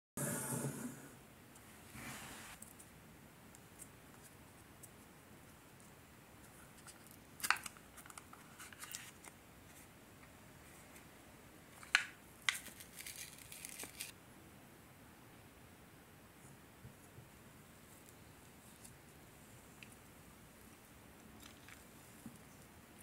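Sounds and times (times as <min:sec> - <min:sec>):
plastic cap crackling and snapping: 0:07.0 - 0:09.4.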